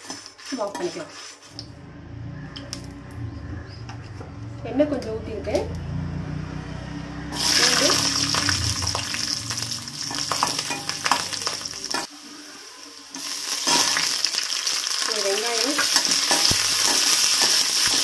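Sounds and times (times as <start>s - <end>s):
metal spoon scraping pan: 0.0s - 1.6s, 10.0s - 12.1s
garlic sizzling in hot oil: 7.3s - 18.0s.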